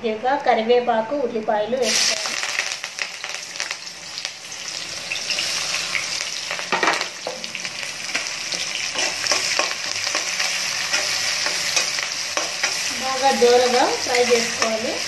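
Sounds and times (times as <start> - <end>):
onions sizzling in hot oil: 1.8 - 15.0
steel spoon stirring pan: 8.1 - 15.0.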